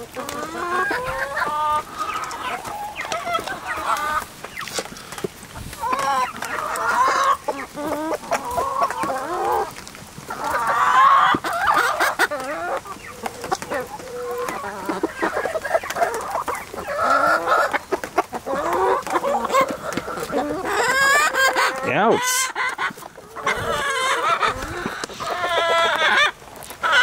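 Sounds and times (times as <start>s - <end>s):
chickens clucking: 0.0s - 27.0s.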